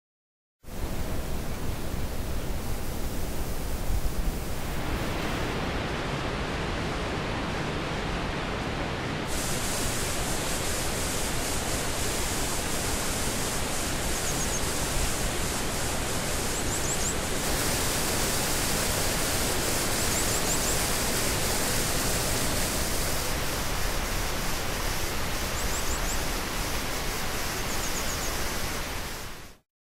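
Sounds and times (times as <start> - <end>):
waterfall rushing: 0.7 - 29.6.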